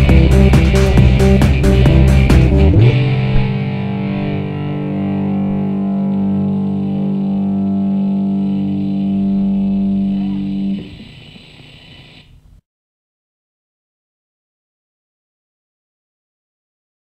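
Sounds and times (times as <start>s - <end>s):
electric bass and synthesizer chord: 0.0s - 11.2s.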